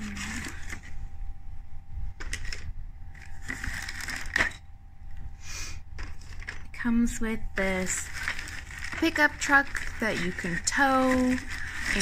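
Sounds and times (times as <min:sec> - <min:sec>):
plastic crinkling: 0:02.2 - 0:04.6, 0:07.6 - 0:12.0.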